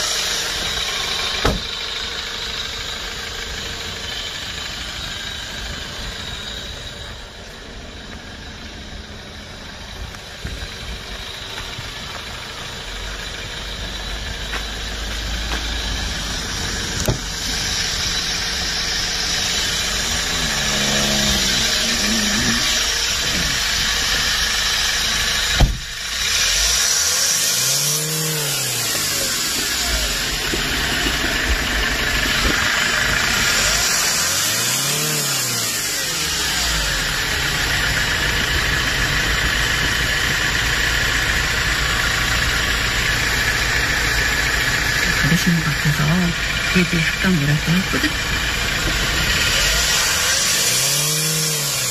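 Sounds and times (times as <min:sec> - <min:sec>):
diesel engine idling: 0:00.0 - 0:51.9
sharp knock: 0:01.4 - 0:01.7.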